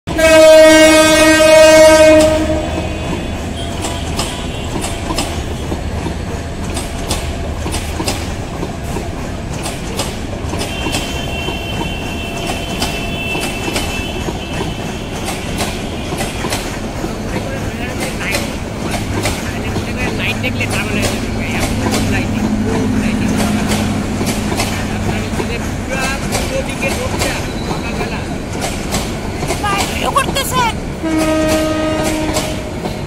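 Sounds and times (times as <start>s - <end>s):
train horn blast: 0.1s - 5.7s, 10.6s - 16.5s, 31.0s - 32.8s
train coaches rumbling past: 0.1s - 33.0s
wheels clacking over rail joints: 0.8s - 33.0s.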